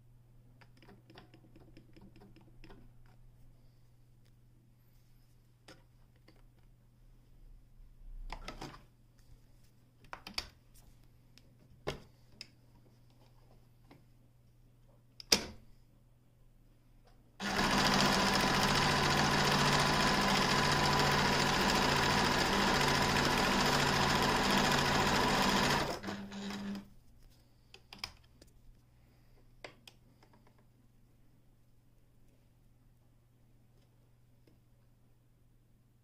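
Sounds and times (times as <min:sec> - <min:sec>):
sewing machine clicks: 0:17.4 - 0:26.8
sewing machine stitching: 0:17.4 - 0:26.9.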